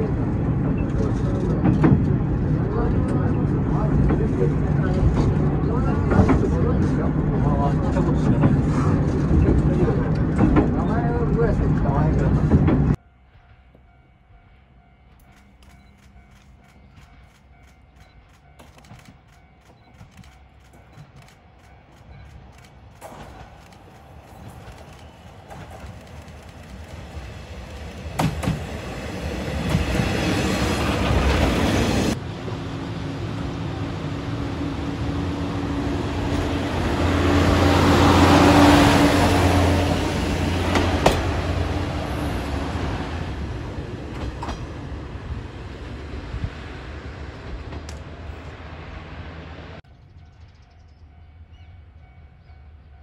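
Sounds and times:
railcar running rumble: 0:00.0 - 0:53.0
sharp clicks from rails: 0:15.1 - 0:32.1, 0:44.1 - 0:44.8.

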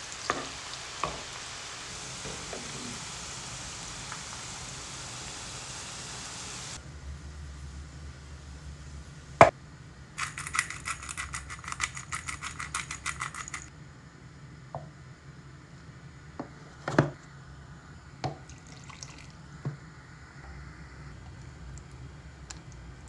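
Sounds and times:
pepper mill grinding: 0:10.2 - 0:13.7.

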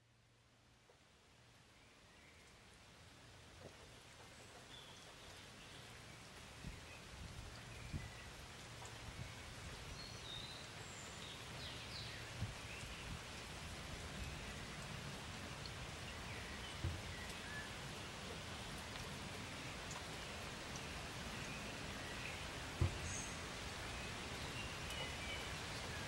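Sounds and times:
outdoor background hiss: 0:00.0 - 0:26.0
soft low thumps: 0:22.8 - 0:23.1.

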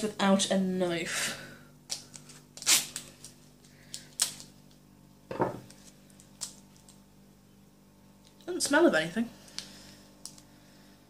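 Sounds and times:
sweet packet crackling: 0:01.9 - 0:04.8, 0:05.7 - 0:07.0.

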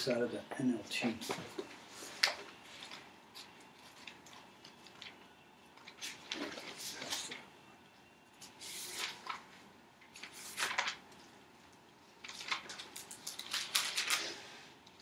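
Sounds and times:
pages being turned: 0:05.8 - 0:07.5, 0:08.4 - 0:11.3, 0:12.2 - 0:15.0.

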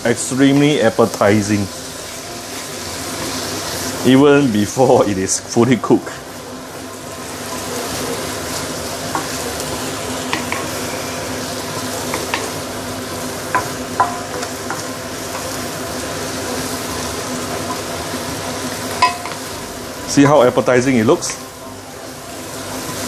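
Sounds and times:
food sizzling in a wok: 0:00.0 - 0:23.0
spatula knocking and scraping pan: 0:10.3 - 0:10.7, 0:13.5 - 0:15.5.

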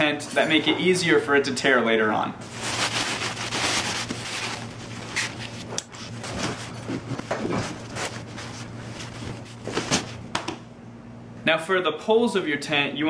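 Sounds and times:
tent fabric rustling and crumpling: 0:02.4 - 0:10.2.

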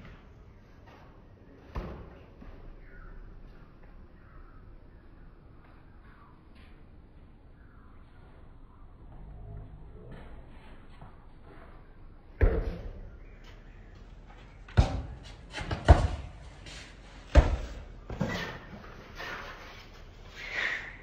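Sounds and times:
basketball bouncing on pavement: 0:14.6 - 0:16.5, 0:17.2 - 0:18.2.

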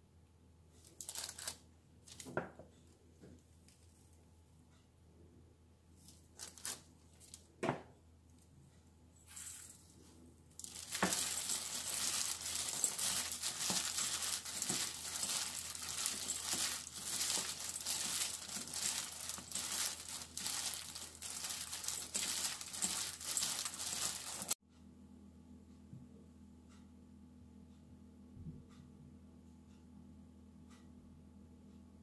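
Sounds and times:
plastic glove crinkling: 0:00.9 - 0:02.3, 0:06.0 - 0:07.5, 0:10.6 - 0:24.6.

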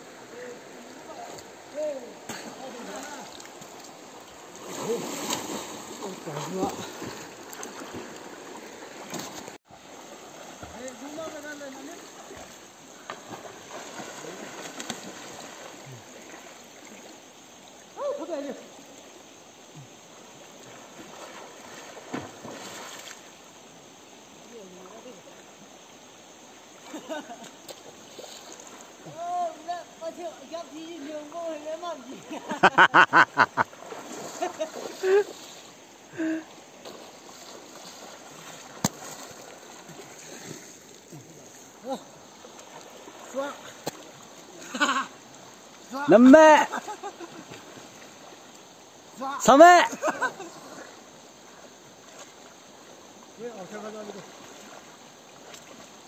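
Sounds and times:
river water running: 0:00.0 - 0:56.0
people splashing in pool: 0:04.5 - 0:09.6, 0:10.3 - 0:16.0.

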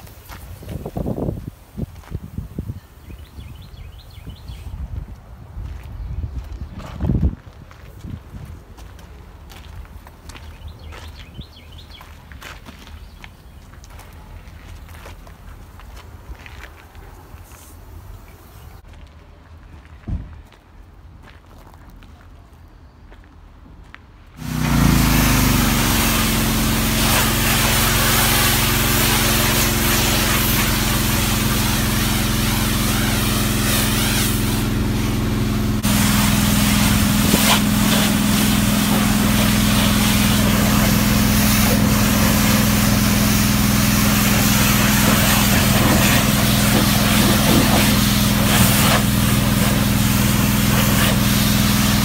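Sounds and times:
high-pressure water spray hissing: 0:24.4 - 0:52.0
pressure washer engine running: 0:24.4 - 0:52.0.

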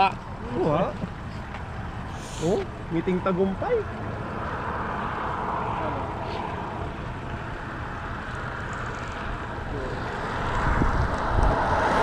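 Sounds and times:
car approaching on highway: 0:00.0 - 0:12.0.

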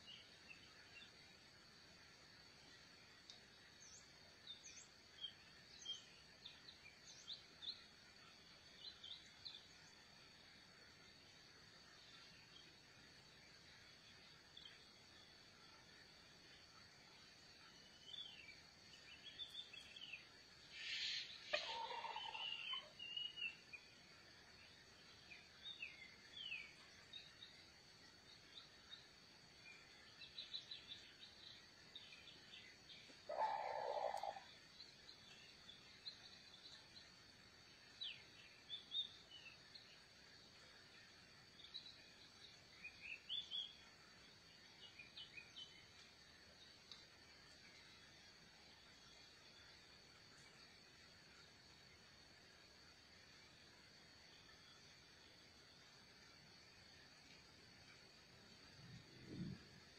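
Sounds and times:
small birds chirping: 0:17.6 - 0:52.3
lower bird calls: 0:17.9 - 0:23.6, 0:30.2 - 0:34.6.

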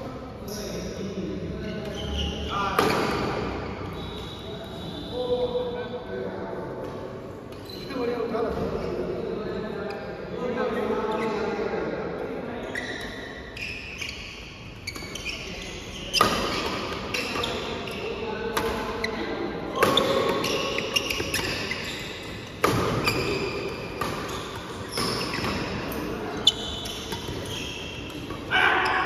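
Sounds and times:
players' voices: 0:00.0 - 0:13.2
rackets hitting shuttlecock: 0:19.8 - 0:21.7, 0:22.5 - 0:26.1.

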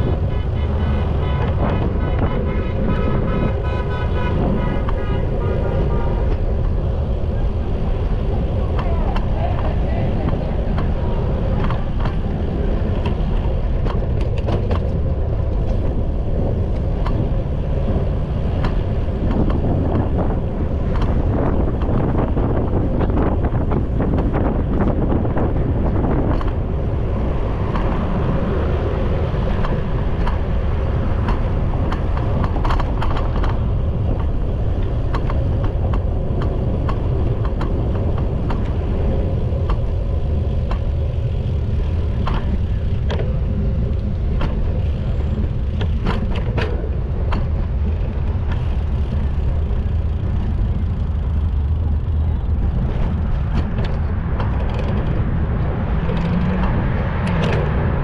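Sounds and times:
city traffic: 0:00.0 - 0:58.0
wind buffeting microphone: 0:00.0 - 0:58.0.

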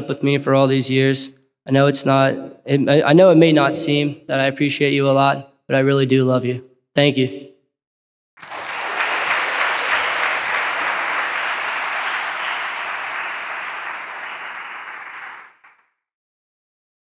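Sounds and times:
audience applauding: 0:08.4 - 0:15.9.

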